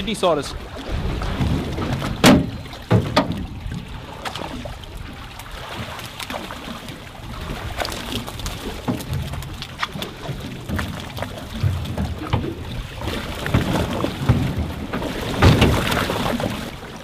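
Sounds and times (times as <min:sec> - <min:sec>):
water slapping against hulls: 0:00.0 - 0:17.0
short knocks and slaps: 0:01.9 - 0:03.6.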